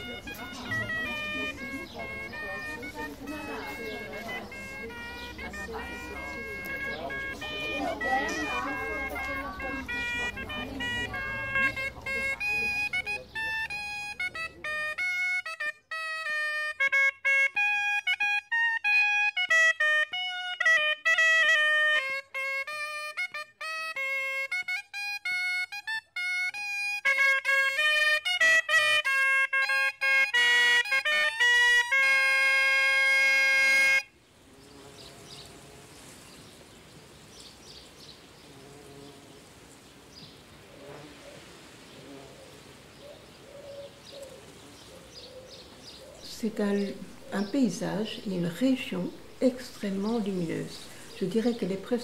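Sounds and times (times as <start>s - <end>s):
wind instrument solo melody: 0.0s - 36.0s.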